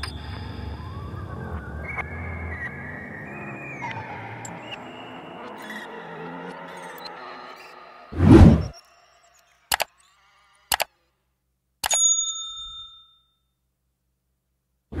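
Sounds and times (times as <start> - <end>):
whoosh: 8.1 - 8.8
bell ding: 11.8 - 13.4.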